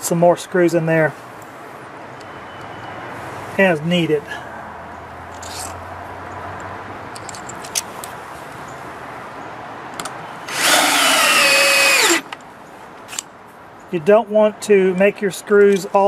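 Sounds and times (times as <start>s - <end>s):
power drill driving screw: 10.5s - 12.3s.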